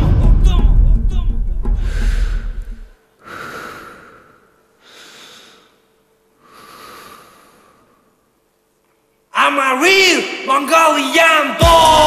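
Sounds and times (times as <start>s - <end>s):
man breathing heavily: 1.7s - 8.4s.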